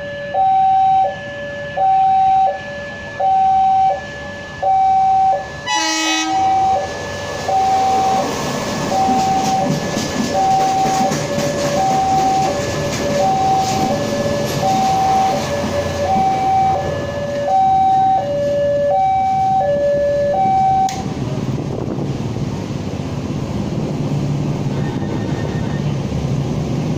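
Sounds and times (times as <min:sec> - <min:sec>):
level-crossing alarm two-tone: 0:00.0 - 0:08.3, 0:08.9 - 0:21.0
rail machines rumbling past: 0:00.0 - 0:26.9
traffic rumble: 0:00.0 - 0:26.9
short horn blast: 0:05.6 - 0:06.8.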